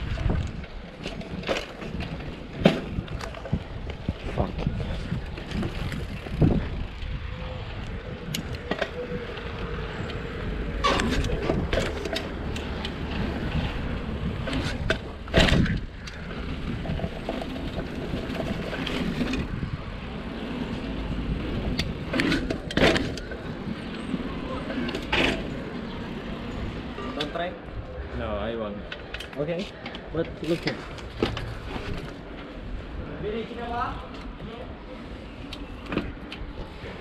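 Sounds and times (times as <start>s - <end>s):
bike knocks and rattles: 0.0s - 7.2s, 10.7s - 19.8s, 20.8s - 24.1s, 29.9s - 32.3s
bicycle tyres rumbling: 0.0s - 37.0s
wind: 0.0s - 37.0s.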